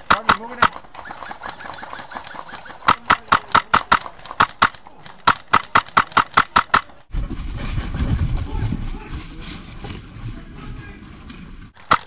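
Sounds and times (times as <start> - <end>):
airsoft rifle rapid shots: 0.0 - 7.0, 11.8 - 12.0.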